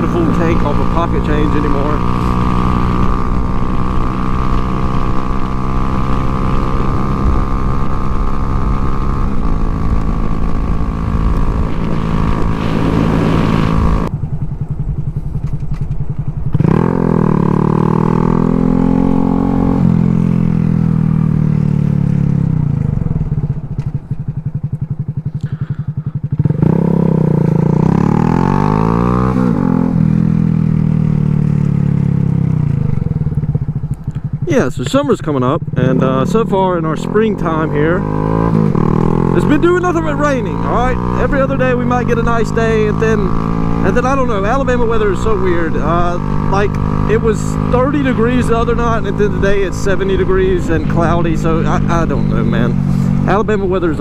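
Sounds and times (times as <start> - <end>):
motorcycle engine revving: 0.0 - 54.0
wind rushing past: 2.0 - 15.3.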